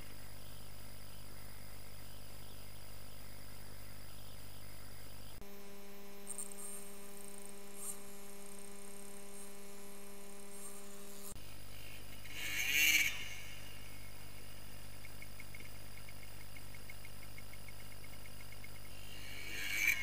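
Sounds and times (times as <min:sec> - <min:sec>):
steady hum: 0:00.0 - 0:20.0
dirt bike engine revving: 0:05.4 - 0:14.1.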